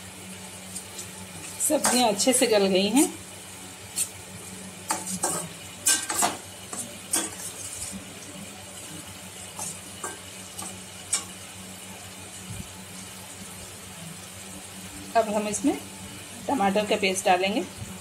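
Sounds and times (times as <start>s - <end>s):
skimmer scraping vegetables in pan: 0.5s - 13.6s.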